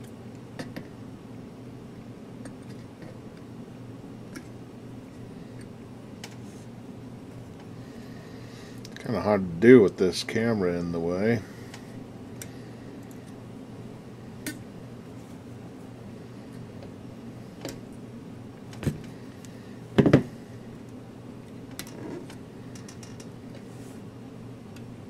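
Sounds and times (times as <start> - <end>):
pliers knocking on bench: 20.0 - 20.3.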